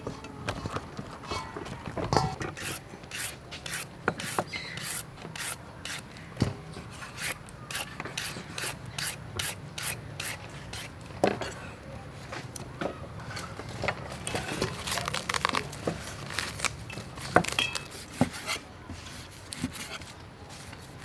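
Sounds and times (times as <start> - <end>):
peeler scraping a carrot: 2.4 - 6.1, 6.9 - 11.0, 17.8 - 21.0.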